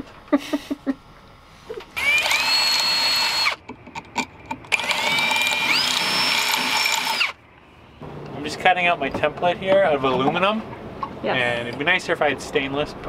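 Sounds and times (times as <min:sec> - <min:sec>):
cordless drill boring through metal: 0:02.0 - 0:03.6, 0:04.7 - 0:07.4.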